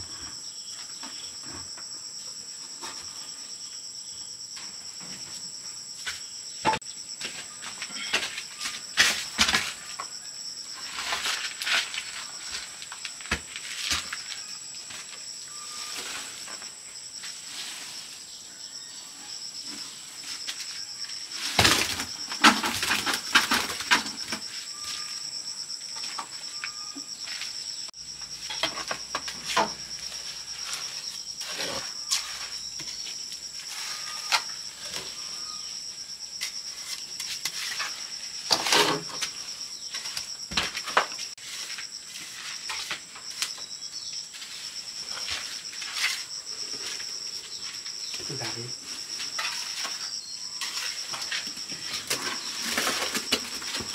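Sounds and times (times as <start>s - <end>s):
insects trilling: 0.0s - 53.9s
scrapes and knocks: 44.3s - 53.9s.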